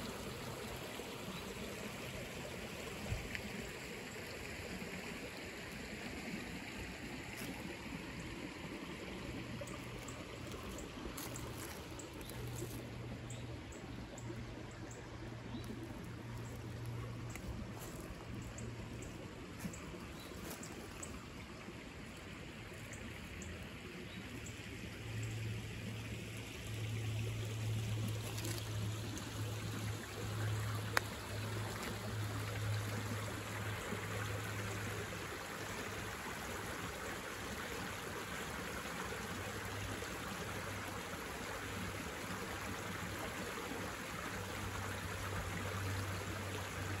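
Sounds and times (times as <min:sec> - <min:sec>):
creek babbling over stones: 0:00.0 - 0:47.0.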